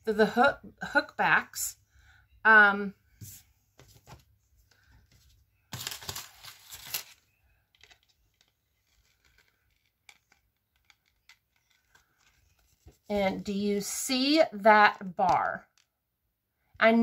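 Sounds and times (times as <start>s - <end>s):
packaging tearing and crinkling: 5.7s - 7.2s.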